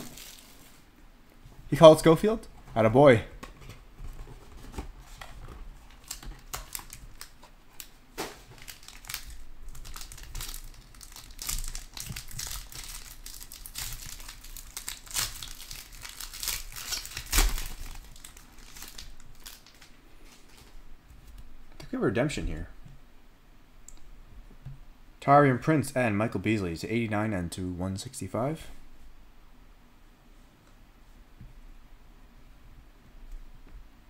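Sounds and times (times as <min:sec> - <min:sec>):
foil wrapper crinkling and tearing: 0:00.0 - 0:00.8, 0:05.8 - 0:20.8.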